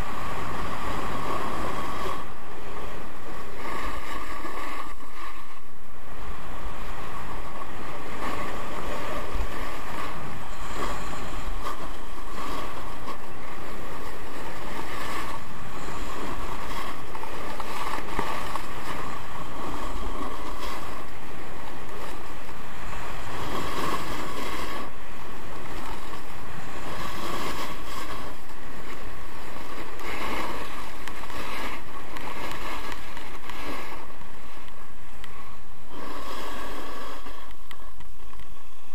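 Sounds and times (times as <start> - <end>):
skis scraping on snow: 0.0 - 38.9
wind rushing over microphone: 0.0 - 38.9.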